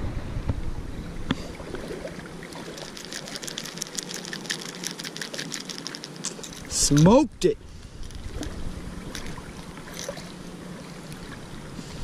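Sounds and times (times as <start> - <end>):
fishing lure clicking and rattling: 2.6 - 7.2.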